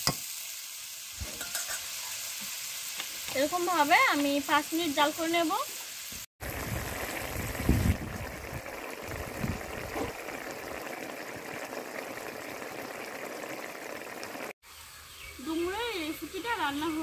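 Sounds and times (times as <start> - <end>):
curry bubbling in a pan: 6.4 - 14.6.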